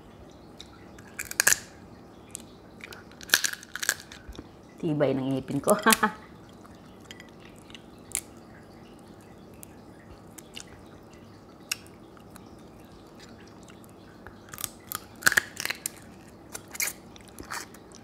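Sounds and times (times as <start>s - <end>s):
crunching and chewing: 1.0s - 1.7s, 2.4s - 4.5s, 13.2s - 18.0s.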